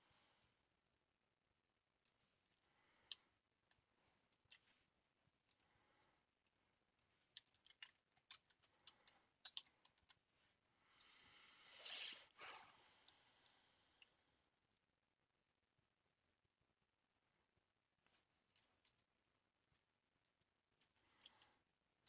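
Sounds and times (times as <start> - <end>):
short hiss: 11.7 - 12.3.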